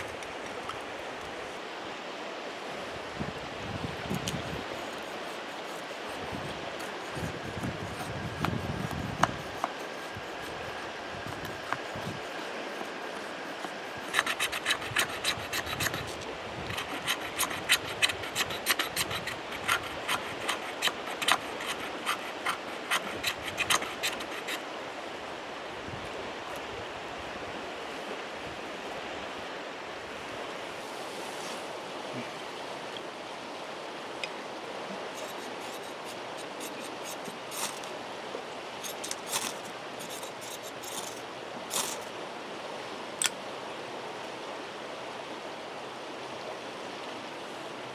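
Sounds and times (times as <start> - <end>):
creek rushing: 0.0 - 47.9
knife shaving wood: 4.1 - 24.7, 35.1 - 38.0, 38.8 - 42.1.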